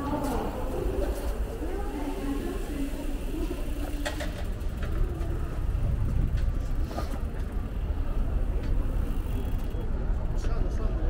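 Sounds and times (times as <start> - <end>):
low rumble of passing cars: 0.0 - 11.0.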